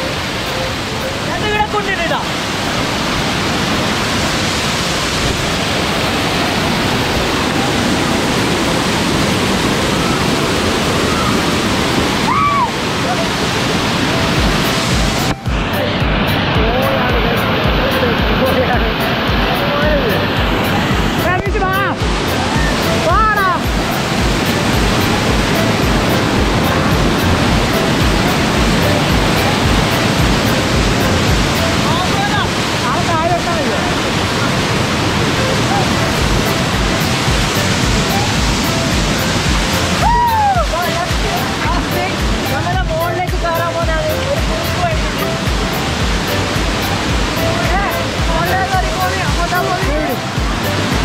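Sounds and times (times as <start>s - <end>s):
waterfall rushing: 0.0s - 51.0s
background music with steady beat: 13.9s - 33.0s, 35.1s - 51.0s.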